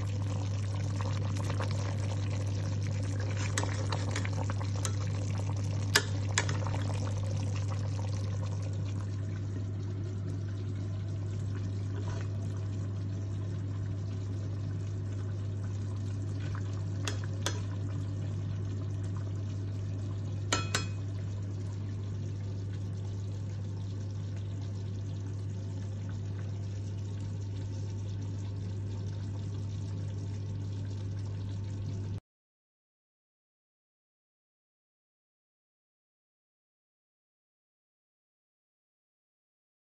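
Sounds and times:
low hum with faint hiss: 0.0 - 32.2.

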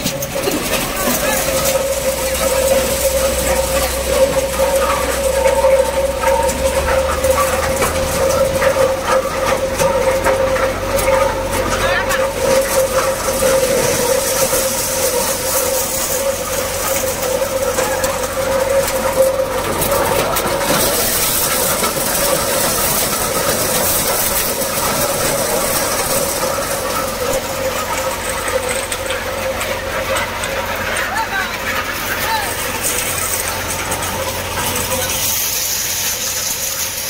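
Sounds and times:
thresher machine running: 0.0 - 37.0.

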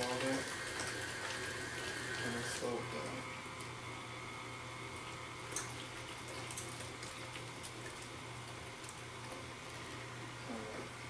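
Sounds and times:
cream pouring: 0.0 - 3.8
stand mixer motor hum: 0.0 - 5.4
batter churning: 0.0 - 11.0.

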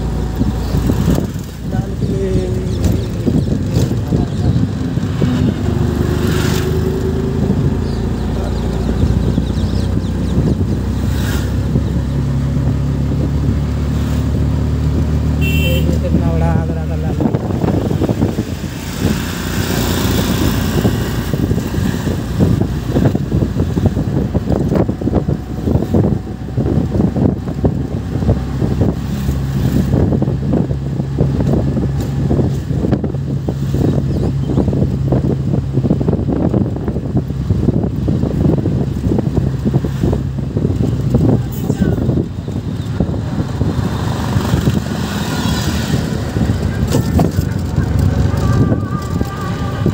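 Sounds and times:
vehicle engine drone: 0.0 - 49.9
wind buffeting microphone: 0.0 - 49.9.

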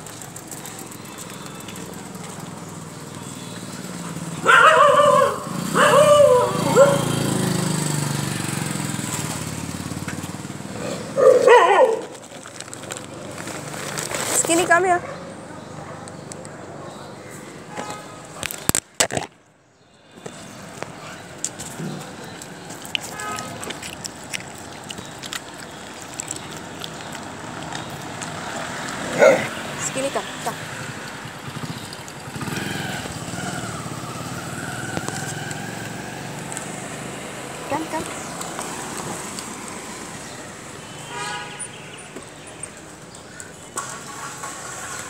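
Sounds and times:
street noise: 0.0 - 45.0
dog barking: 4.4 - 7.2, 11.2 - 12.1, 29.1 - 29.6.

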